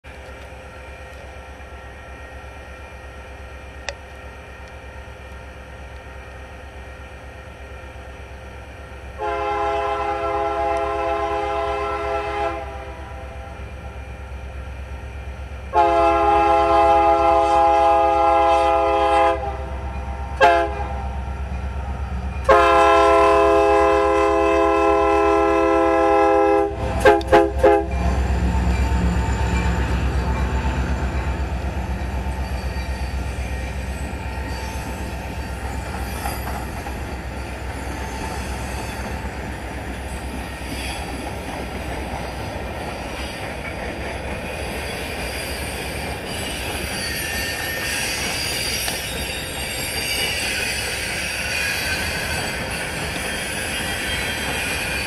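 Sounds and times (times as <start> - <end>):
locomotive air horn blasts: 9.2 - 13.6, 15.7 - 19.7, 20.4 - 21.1, 22.4 - 28.2.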